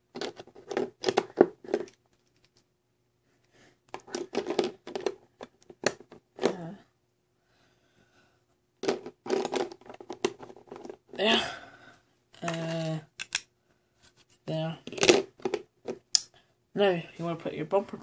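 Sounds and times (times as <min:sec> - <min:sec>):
plastic toy pieces clicking: 0:12.4 - 0:13.5, 0:14.8 - 0:16.3.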